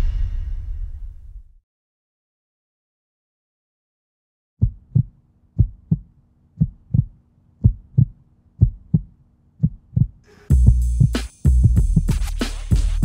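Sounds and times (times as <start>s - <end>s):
heartbeat thumps: 4.6s - 12.2s
loud music with a beat: 10.5s - 13.0s.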